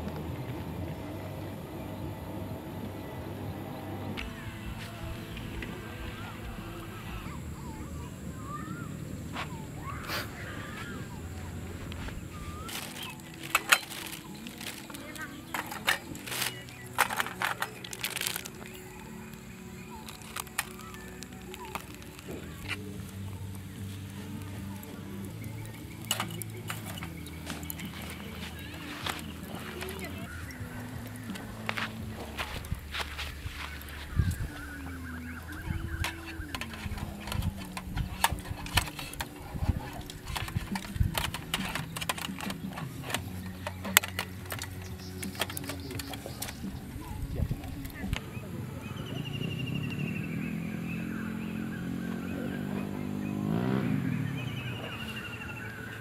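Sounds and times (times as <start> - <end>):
steady low hum: 0.0 - 51.7
steady low drone: 0.0 - 56.0
metal grill grate clinking: 11.1 - 34.7, 35.4 - 48.1.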